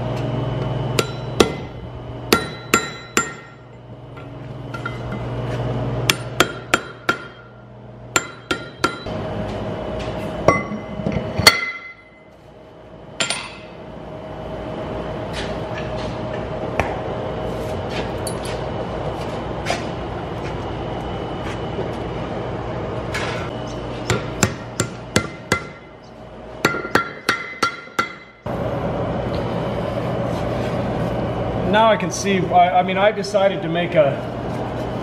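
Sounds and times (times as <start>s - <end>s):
hammer striking steel on anvil: 0.9s - 5.2s, 6.1s - 9.1s, 10.4s - 12.3s, 13.2s - 13.8s, 24.1s - 26.0s, 26.6s - 28.5s.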